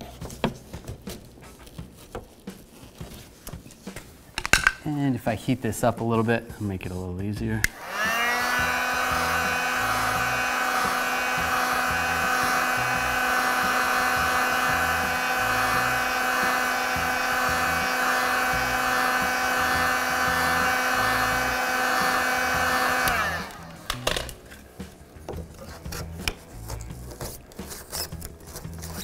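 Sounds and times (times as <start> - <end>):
heat gun motor whine: 7.6 - 24.4.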